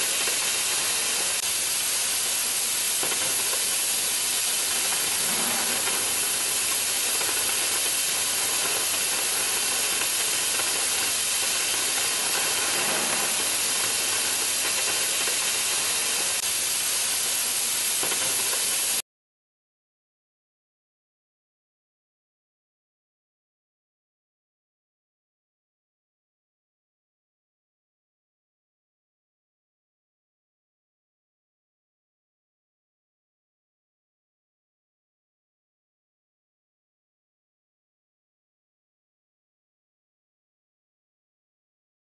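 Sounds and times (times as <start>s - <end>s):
cutting torch hissing: 0.0s - 19.0s.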